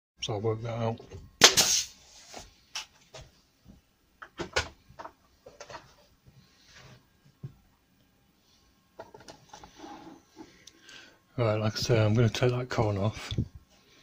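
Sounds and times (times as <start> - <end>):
nail gun firing: 1.4 - 1.9.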